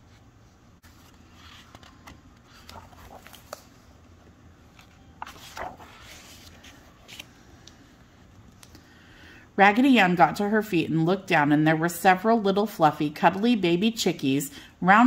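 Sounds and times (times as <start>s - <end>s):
book page turning: 0.8s - 4.0s, 4.6s - 7.8s.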